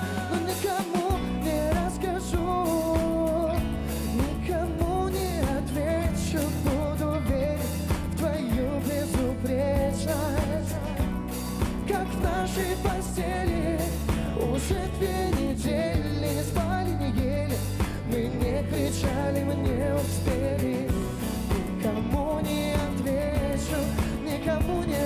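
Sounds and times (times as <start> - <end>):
bass guitar: 0.0 - 25.0
drum kit beat: 0.0 - 25.0
electric guitar: 0.0 - 25.0
keyboards: 0.0 - 25.0.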